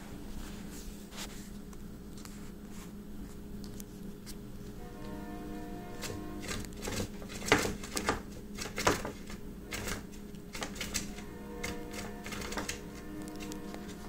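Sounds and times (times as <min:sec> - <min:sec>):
background music with held notes: 0:04.8 - 0:08.2, 0:09.6 - 0:14.0.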